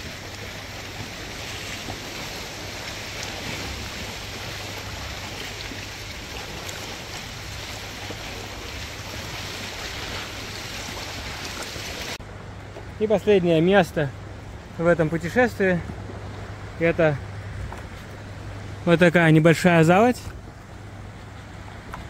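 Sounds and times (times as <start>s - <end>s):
sea water splashing: 0.0s - 12.2s.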